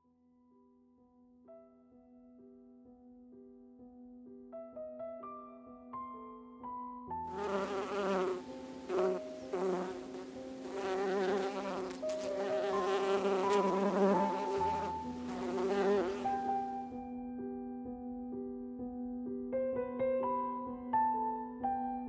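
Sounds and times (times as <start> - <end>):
soft piano music: 0.0 - 22.0
honey bees buzzing: 7.3 - 16.7.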